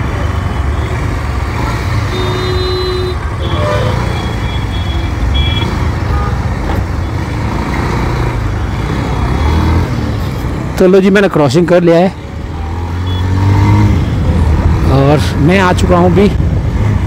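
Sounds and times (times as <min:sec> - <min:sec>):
traffic noise: 0:00.0 - 0:17.0
vehicle horn beeps: 0:02.1 - 0:06.5.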